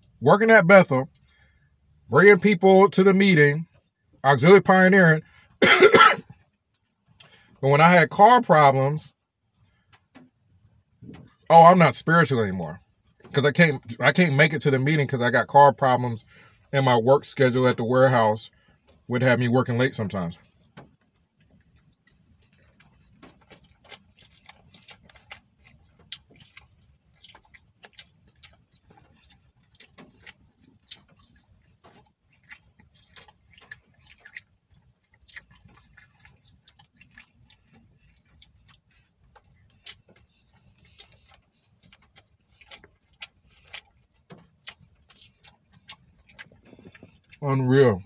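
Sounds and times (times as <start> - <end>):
person chewing crisp food: 20.3 - 48.0.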